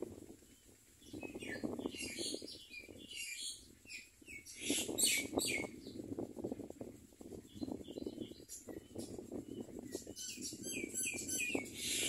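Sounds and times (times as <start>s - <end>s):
low crackling rustle: 0.0s - 1.6s
birds chirping harsh calls: 1.0s - 6.0s, 7.5s - 12.0s.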